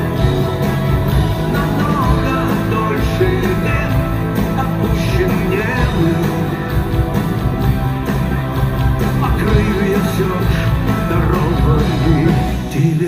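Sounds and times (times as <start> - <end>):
live rock band playing: 0.0 - 13.0.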